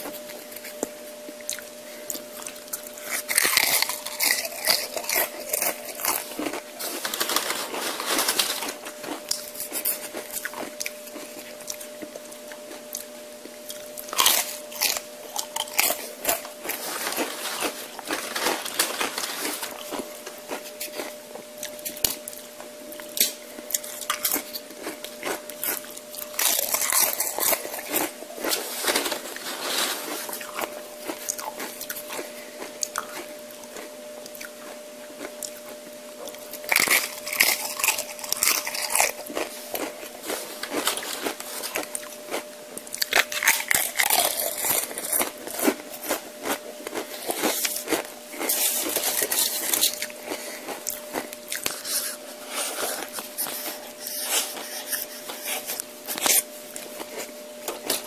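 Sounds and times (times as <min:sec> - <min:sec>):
crunchy chewing: 0:00.0 - 0:58.0
faint steady hum: 0:00.0 - 0:58.0.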